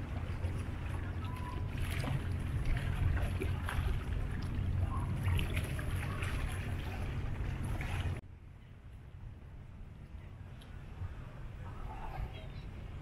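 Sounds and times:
water noise: 0:00.0 - 0:08.2
boat engine rumbling: 0:00.0 - 0:13.0.

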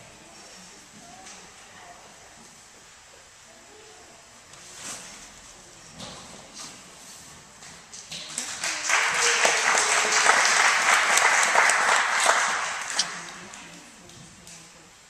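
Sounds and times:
audience clapping: 0:08.4 - 0:13.7.

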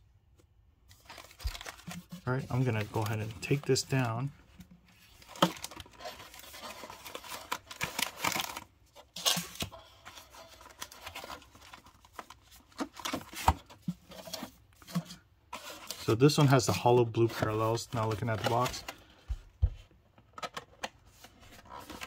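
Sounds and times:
foil packs crinkling: 0:01.0 - 0:04.3, 0:05.1 - 0:13.4, 0:15.8 - 0:19.1.

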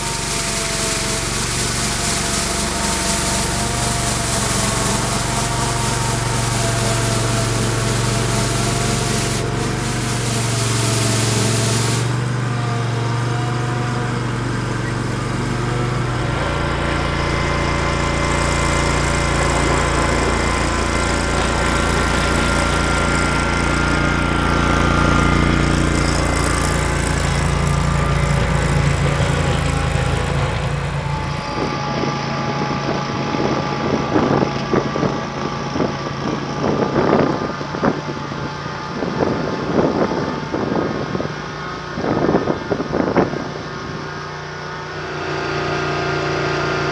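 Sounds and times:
snow vehicle engine running: 0:00.0 - 0:46.9.

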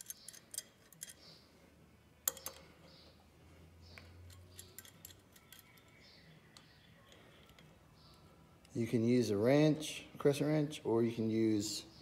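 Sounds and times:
metal tools clinking: 0:00.0 - 0:01.4, 0:04.2 - 0:07.7.

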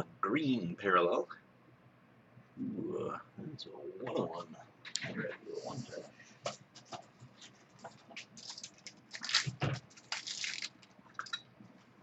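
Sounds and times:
card packaging crinkling: 0:08.2 - 0:11.0.

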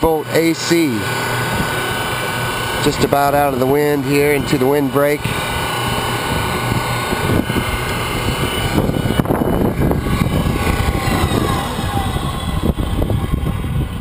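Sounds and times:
electric motor whining: 0:00.0 - 0:14.0.

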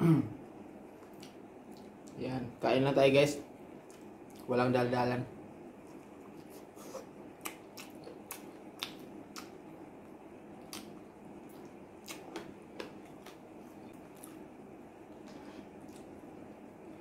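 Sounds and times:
low room hum: 0:00.0 - 0:17.0
man eating with lip smacks: 0:00.9 - 0:02.2, 0:03.7 - 0:04.5, 0:05.8 - 0:16.7.

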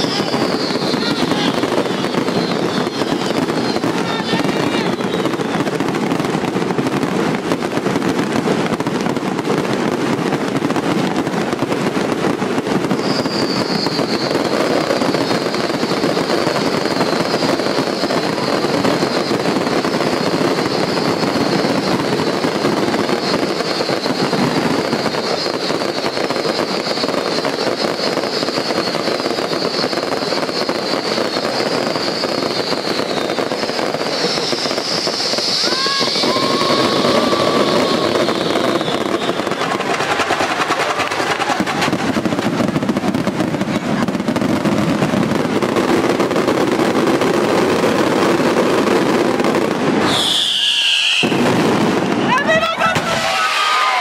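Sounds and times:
falling firework whistles: 0:00.0 - 0:54.0
fireworks crackling: 0:00.0 - 0:54.0.

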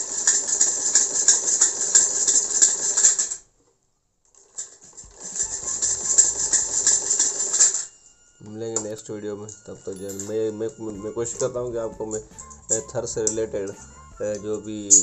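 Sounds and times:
sewing machine ticking: 0:00.0 - 0:03.4, 0:04.8 - 0:07.9.

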